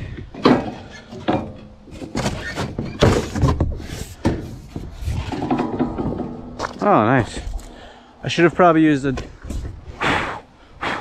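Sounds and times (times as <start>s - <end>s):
cardboard panel thunks and scrapes: 2.0s - 6.7s.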